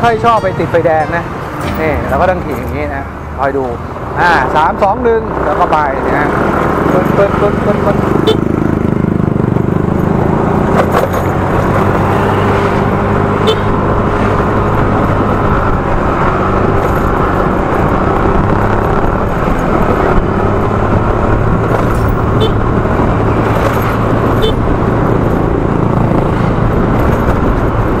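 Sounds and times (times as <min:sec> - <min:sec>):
road and wind noise: 0:00.0 - 0:28.0.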